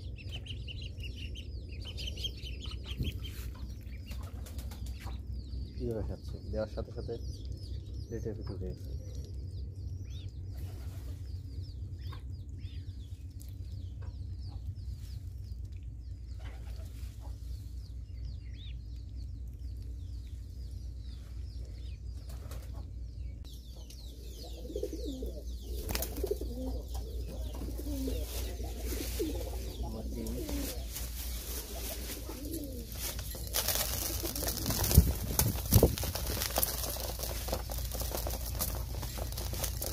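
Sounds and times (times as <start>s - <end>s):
ducklings peeping: 0.0s - 39.9s
pigeons cooing: 16.3s - 17.4s, 24.0s - 39.9s.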